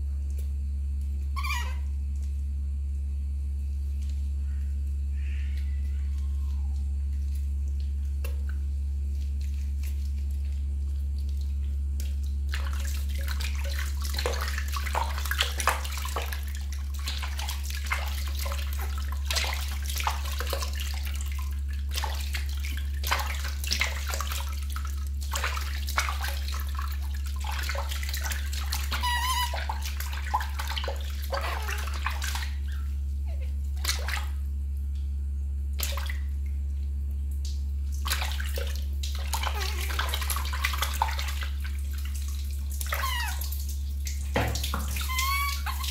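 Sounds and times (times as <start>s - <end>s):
low hum: 0.0s - 45.9s
high squeak: 1.4s - 1.8s, 29.0s - 29.7s, 43.0s - 43.4s, 45.0s - 45.9s
water splashing in metal basin: 5.5s - 34.5s, 35.6s - 45.9s.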